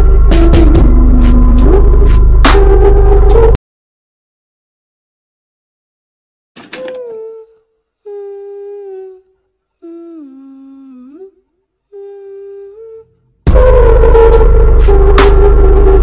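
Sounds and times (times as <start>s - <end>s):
person humming: 6.8s - 13.1s.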